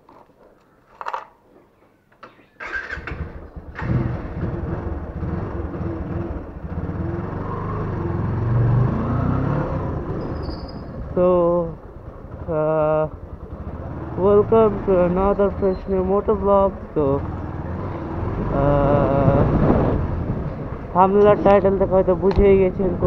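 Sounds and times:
starter clicks: 0:00.1 - 0:01.5
engine cranking: 0:02.2 - 0:05.3
motorcycle engine running: 0:02.8 - 0:08.6, 0:09.8 - 0:23.0.

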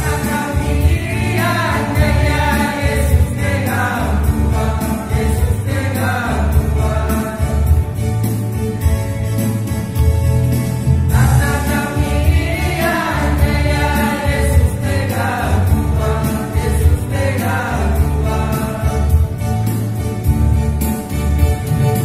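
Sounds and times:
voices singing together: 0:00.0 - 0:08.5, 0:11.1 - 0:20.1
band with pulsing bass line: 0:00.0 - 0:22.0.

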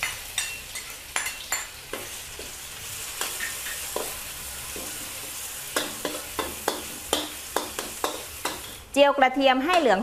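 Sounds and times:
spatula scraping and tapping wok: 0:00.0 - 0:08.9
garlic sizzling in hot oil: 0:00.0 - 0:10.0.

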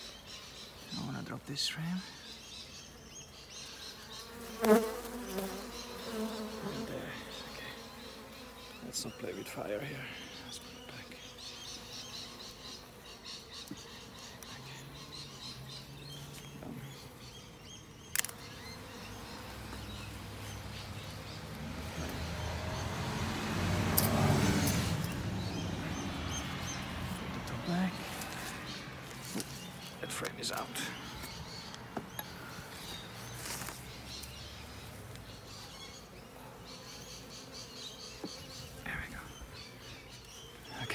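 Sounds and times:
bees buzzing: 0:00.0 - 0:40.9
honeybees humming: 0:00.0 - 0:40.9
sharp click: 0:18.1 - 0:18.4.

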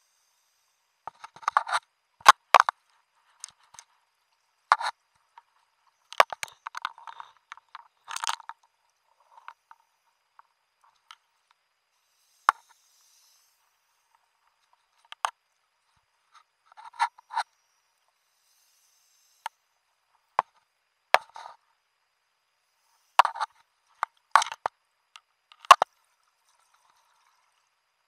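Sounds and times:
underwater clicks and crackles: 0:04.7 - 0:05.5, 0:06.1 - 0:09.8, 0:23.2 - 0:25.9.

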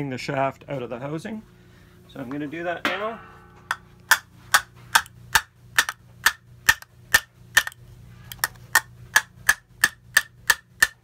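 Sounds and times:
hammer striking steel nut: 0:02.9 - 0:07.8, 0:09.2 - 0:11.0.

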